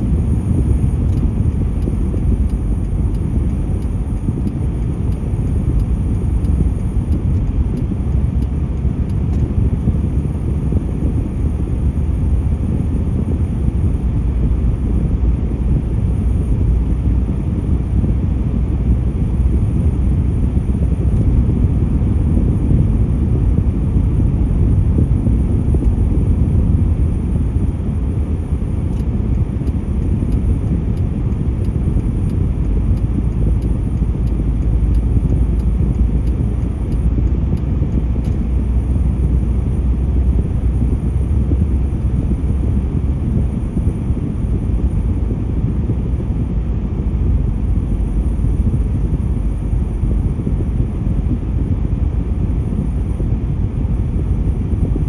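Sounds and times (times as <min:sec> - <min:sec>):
car road noise rumble: 0:00.0 - 0:55.0
faint regular ticking: 0:00.4 - 0:10.1, 0:25.7 - 0:45.4.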